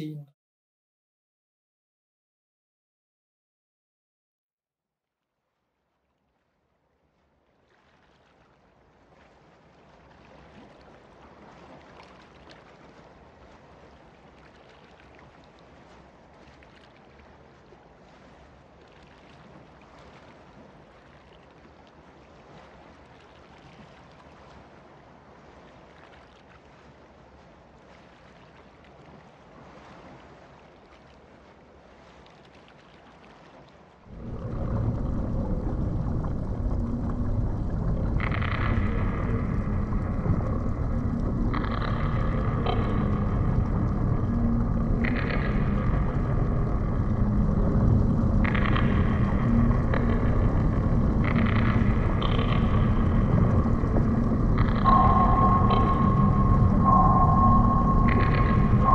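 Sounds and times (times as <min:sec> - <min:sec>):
loud low rumble with hums: 0:34.1 - 0:58.9.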